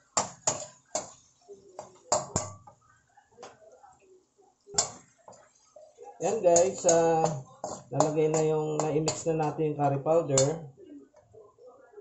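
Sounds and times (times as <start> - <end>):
utensil knocking and scraping in wok: 0.0 - 2.8, 6.2 - 10.6.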